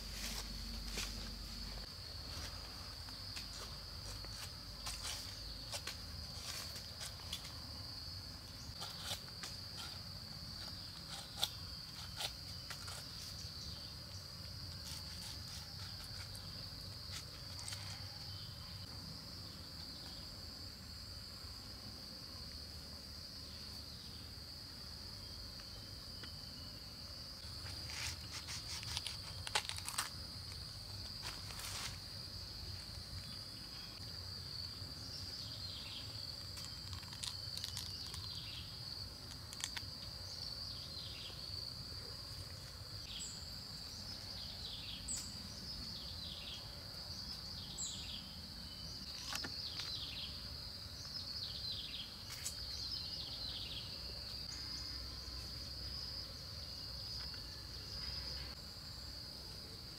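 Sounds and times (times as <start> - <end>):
machete slicing pineapple rind: 10.6 - 13.2.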